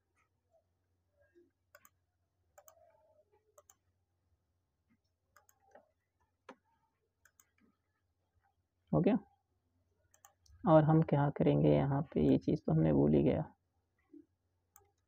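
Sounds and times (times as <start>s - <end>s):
keyboard and mouse clicks: 1.7s - 2.0s, 2.6s - 3.0s, 3.6s - 3.8s, 5.4s - 5.8s, 7.2s - 7.7s, 10.1s - 10.6s.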